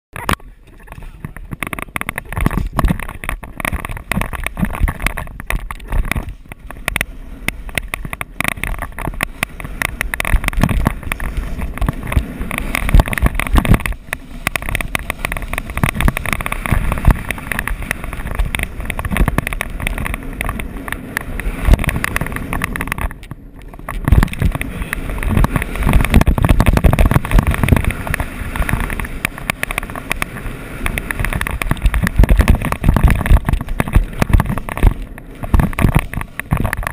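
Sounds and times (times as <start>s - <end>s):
wind noise on microphone: 0.1s - 36.9s
snowboard scraping over snow: 0.3s - 36.9s.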